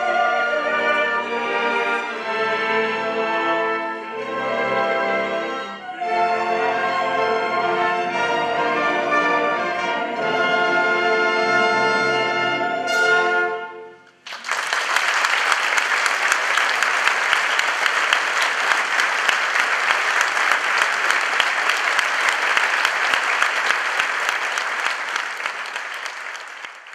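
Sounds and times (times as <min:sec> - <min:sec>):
symphony orchestra playing: 0:00.0 - 0:14.2
audience applause: 0:14.2 - 0:26.9.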